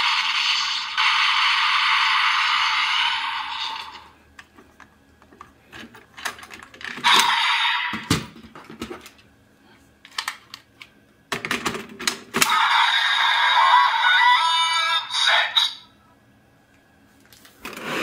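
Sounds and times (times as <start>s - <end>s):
toy electronic sound effects: 7.0s - 8.1s, 12.5s - 15.8s.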